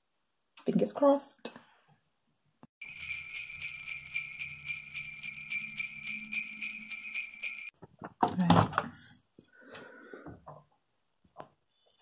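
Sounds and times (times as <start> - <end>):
sleigh bells jingling: 2.8 - 7.8.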